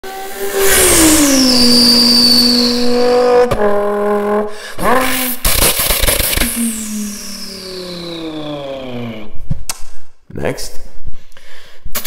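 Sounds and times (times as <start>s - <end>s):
man imitating car engine: 0.4s - 9.3s.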